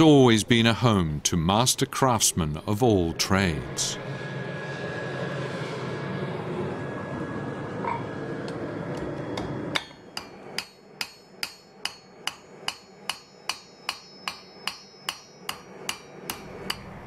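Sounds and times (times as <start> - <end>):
forge roaring: 1.8 - 10.6
hammer striking blade on anvil: 9.8 - 17.0.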